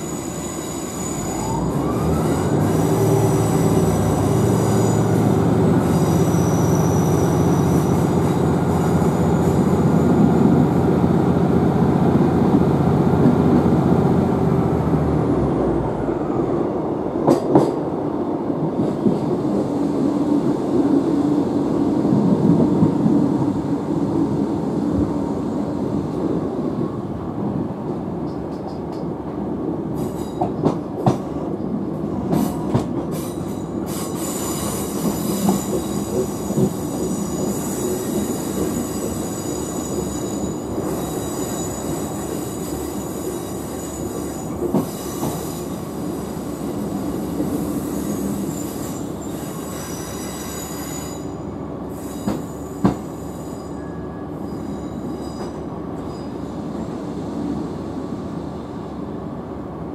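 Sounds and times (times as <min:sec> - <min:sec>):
train wheels squealing: 0:00.0 - 0:10.8, 0:30.0 - 0:30.8, 0:32.3 - 0:59.2
train rumble: 0:00.0 - 0:59.9.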